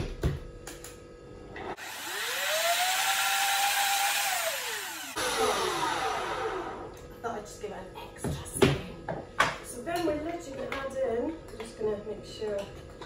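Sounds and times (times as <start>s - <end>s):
blender motor whirring: 1.6s - 7.0s.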